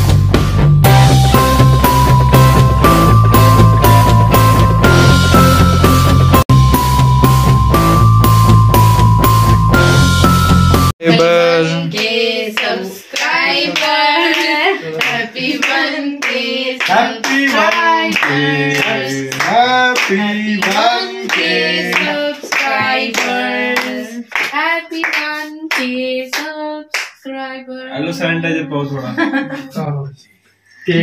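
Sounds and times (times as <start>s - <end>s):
group singing: 11.0s - 26.7s
hands clapping in time: 14.3s - 27.2s.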